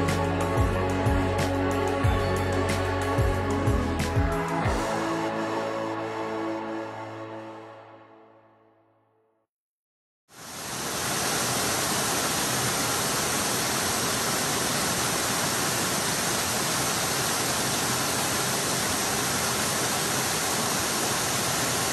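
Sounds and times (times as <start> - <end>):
waterfall rushing: 10.4 - 21.9.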